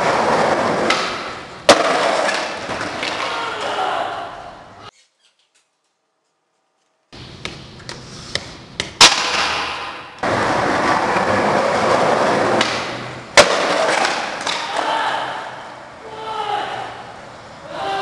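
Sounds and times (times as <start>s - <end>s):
loud sharp crack: 9.0s - 10.2s.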